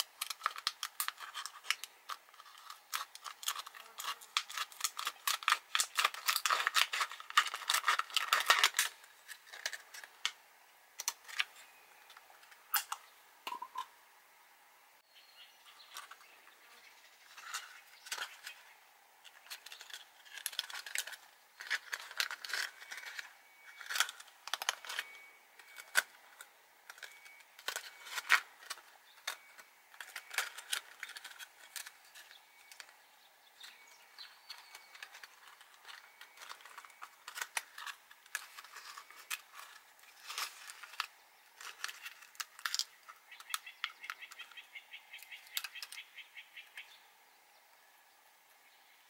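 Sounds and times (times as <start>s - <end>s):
plastic bottle crinkling: 0.0s - 10.4s, 33.6s - 44.4s.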